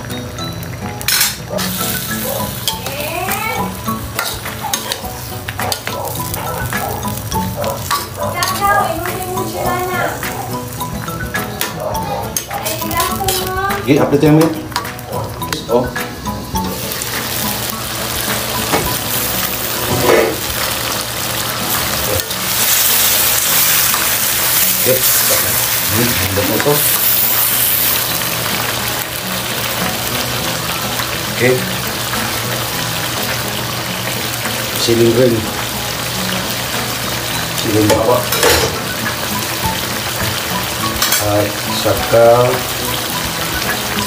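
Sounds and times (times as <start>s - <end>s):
sauce sizzling: 0.0s - 44.0s
metal spoon scraping a pan: 4.2s - 8.8s, 11.5s - 13.6s, 19.8s - 20.8s.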